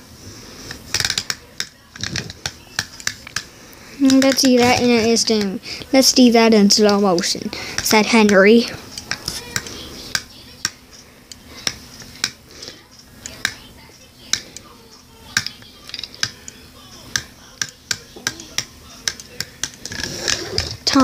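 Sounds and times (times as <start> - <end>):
plastic toy clicks and taps: 0.9 - 3.5, 4.1 - 5.5.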